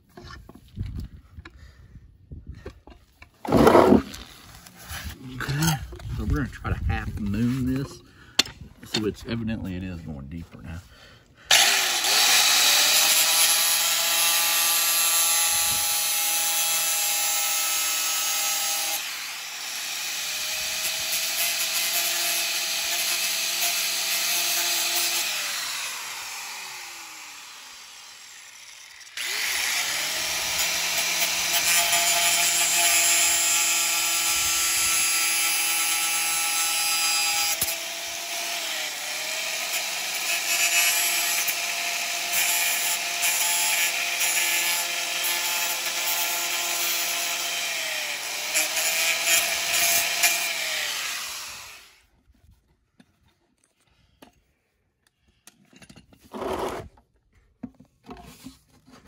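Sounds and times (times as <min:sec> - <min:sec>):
angle grinder cutting plastic pipe: 0:03.3 - 0:06.3, 0:11.5 - 0:52.0, 0:56.2 - 0:57.0.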